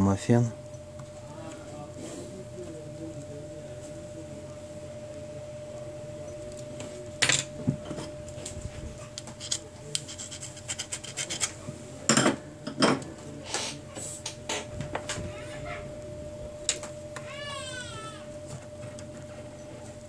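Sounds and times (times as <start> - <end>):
faint steady hum: 0.0 - 20.0
tool scraping circuit board: 9.2 - 11.7.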